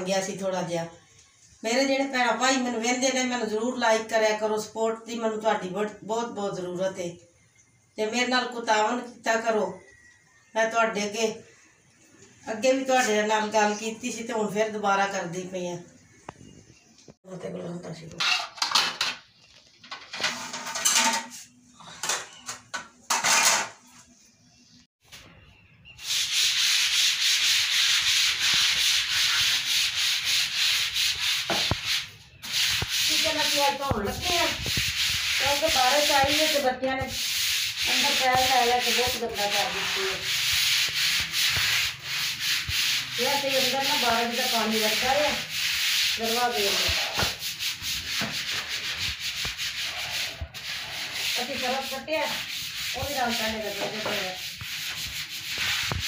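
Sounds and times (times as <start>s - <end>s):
brush scrubbing wet floor: 26.0s - 56.0s.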